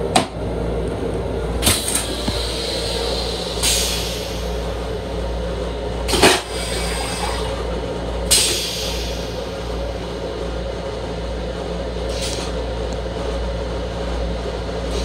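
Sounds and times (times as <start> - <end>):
railcar rumble: 0.0 - 15.0
toilet flush whoosh: 1.6 - 4.8, 6.1 - 7.7, 8.3 - 9.4
rinse water hissing: 1.6 - 5.4, 8.3 - 9.6.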